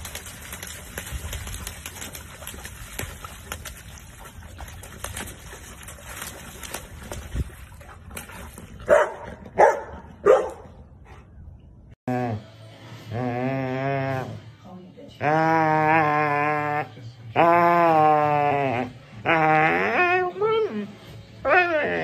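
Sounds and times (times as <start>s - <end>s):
dog splashing in puddle: 0.0s - 9.1s
dog barking: 8.8s - 10.8s.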